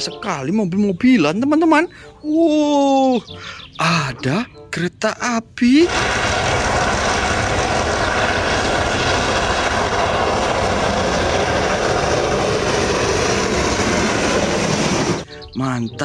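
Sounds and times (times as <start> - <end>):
steam locomotive passing: 5.8 - 15.3.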